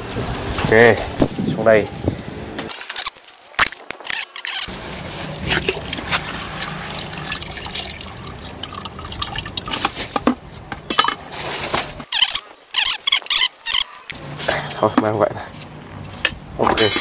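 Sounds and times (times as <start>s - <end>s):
water sloshing and dripping: 3.6s - 11.2s.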